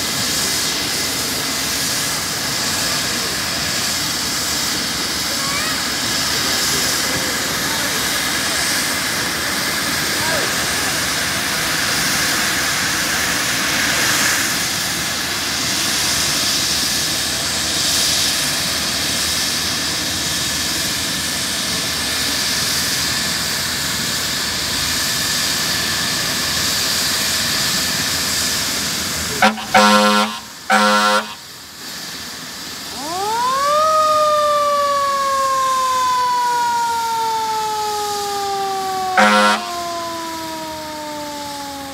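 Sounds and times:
helicopter turbine whine: 0.0s - 41.9s
horn blasts: 29.4s - 31.4s, 39.0s - 40.0s.

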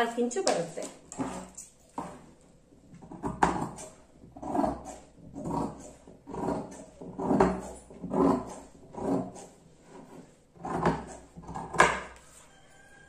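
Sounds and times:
scissors cutting fabric: 3.2s - 12.2s.

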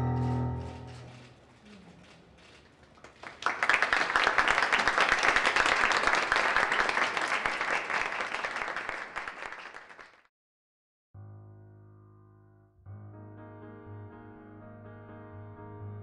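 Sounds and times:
audience applause: 2.8s - 10.3s.

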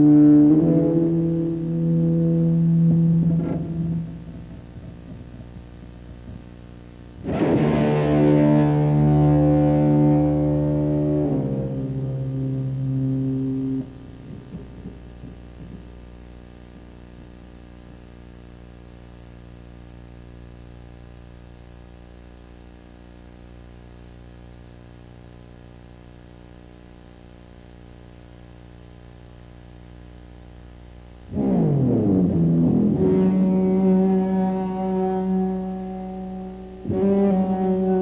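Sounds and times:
low electrical hum: 0.0s - 38.0s
loud musical drone: 7.2s - 14.9s, 31.3s - 38.0s.

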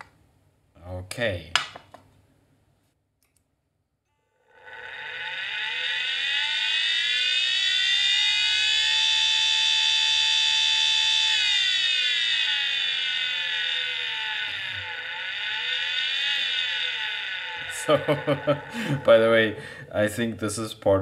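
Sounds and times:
hard drive motor whining: 4.4s - 19.9s.

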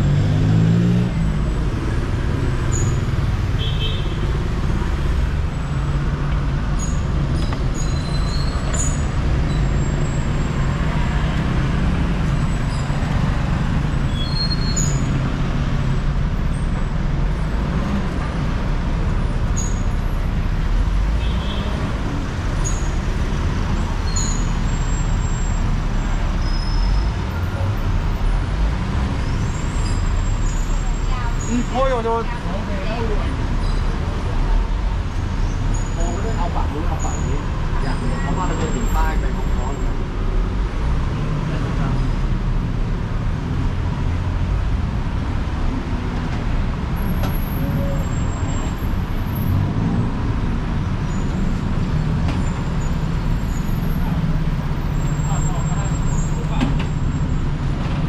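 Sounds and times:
vehicle engines and tyres rumbling: 0.0s - 58.0s
high clinks and squeaks: 6.8s - 10.2s.

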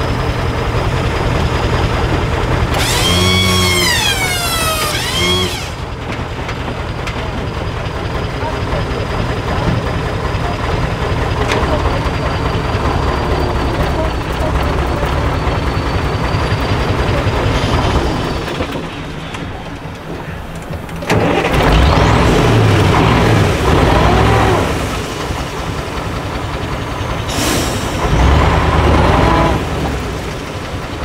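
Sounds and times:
diesel truck engine revving: 0.0s - 18.9s, 19.8s - 31.0s.

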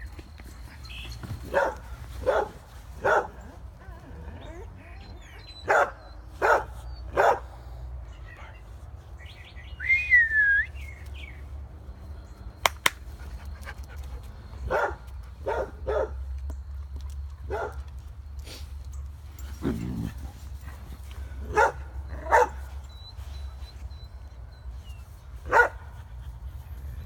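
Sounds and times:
dog barking: 1.5s - 3.4s, 5.6s - 7.6s, 14.7s - 16.2s, 17.5s - 17.8s, 21.5s - 22.7s, 25.5s - 25.9s.

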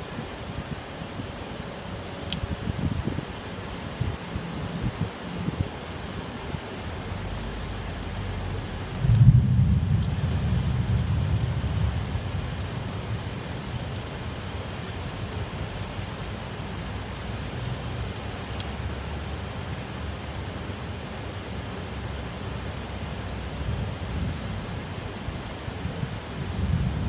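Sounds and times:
heavy rain falling: 0.0s - 27.0s
low rumble: 8.4s - 14.0s
drops splashing on a ledge: 16.9s - 19.1s.

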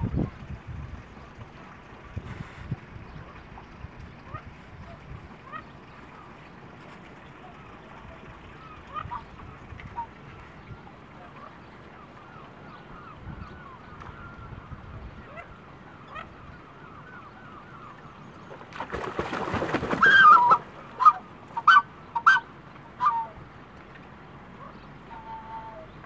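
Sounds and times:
swan short calls: 4.3s - 5.7s, 8.4s - 10.1s, 19.9s - 23.4s, 24.6s - 26.0s
swan splashing and beating wings: 18.4s - 21.8s.

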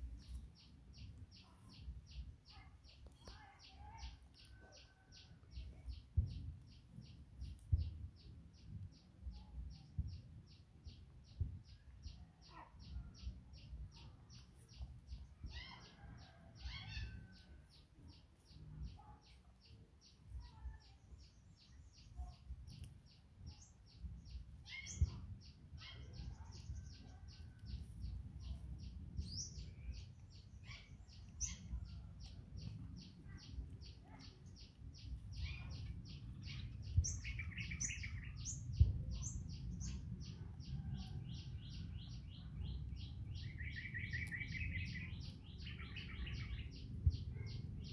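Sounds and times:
low background rumble: 0.0s - 47.9s.

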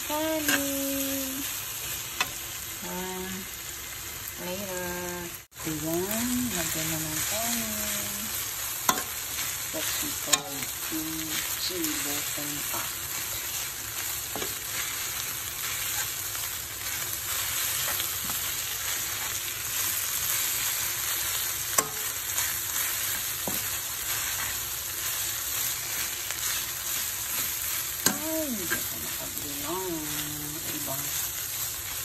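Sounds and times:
rice sizzling in a frying pan: 0.0s - 32.0s
spatula stirring food: 6.6s - 32.0s
spatula tapping pan: 8.8s - 9.2s, 21.6s - 22.2s.

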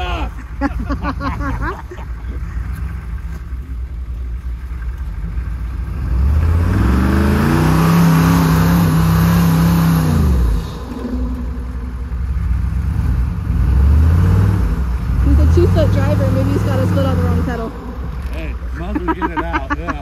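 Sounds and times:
tyres churning snow: 0.0s - 20.0s
engine revving: 4.6s - 20.0s.

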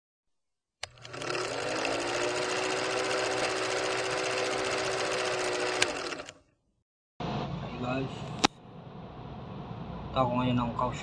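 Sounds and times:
film projector clatter: 0.8s - 6.4s
motor hum: 0.8s - 6.4s.

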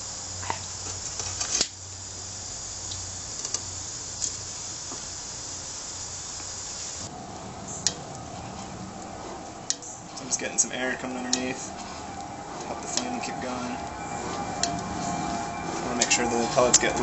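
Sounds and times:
lighter flame hissing: 0.0s - 7.1s.

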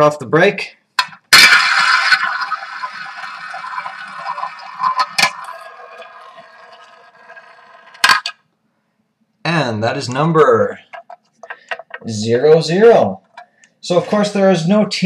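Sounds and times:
roulette ball clattering: 1.0s - 8.4s, 10.7s - 12.2s
roulette ball rolling: 1.0s - 8.4s, 10.2s - 12.2s.

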